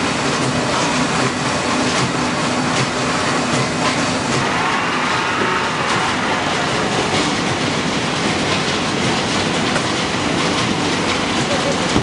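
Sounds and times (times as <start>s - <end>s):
machinery clattering and rumbling: 0.0s - 12.0s.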